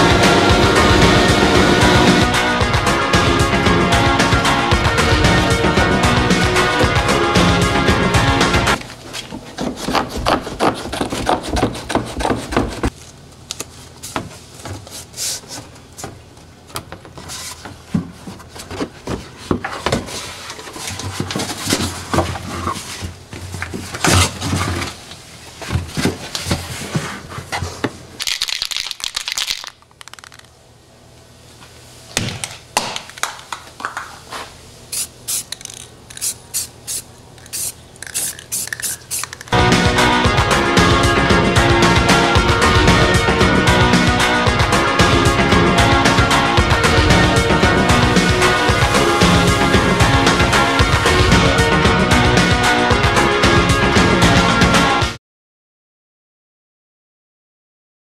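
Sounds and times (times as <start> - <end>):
background music: 0.0 - 8.8, 39.5 - 55.2
aerosol spray can hissing: 34.9 - 39.6
quick clicks: 37.4 - 39.6.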